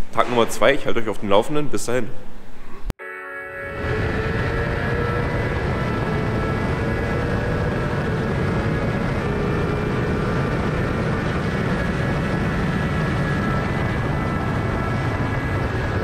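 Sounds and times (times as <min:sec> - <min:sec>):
motorcycle engine running: 0:03.7 - 0:16.0
wind noise: 0:03.8 - 0:16.0.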